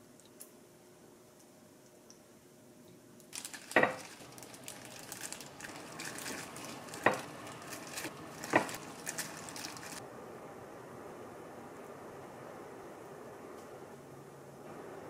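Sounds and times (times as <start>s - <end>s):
plastic glove crinkling: 3.3s - 10.0s.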